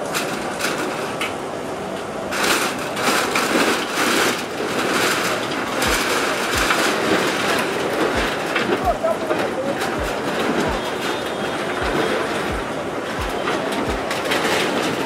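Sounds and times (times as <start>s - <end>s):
sheet metal crumpling and clattering: 0.0s - 1.4s, 2.2s - 15.0s.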